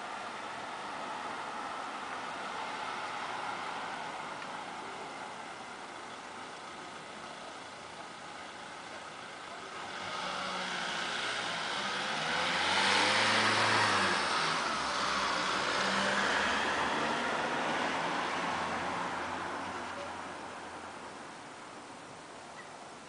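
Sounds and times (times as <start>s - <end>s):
car driving past: 9.8s - 20.9s.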